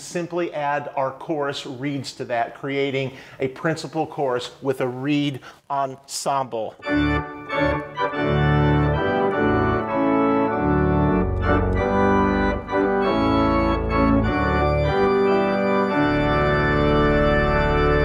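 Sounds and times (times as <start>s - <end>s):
organ playing full chords: 6.8s - 18.0s.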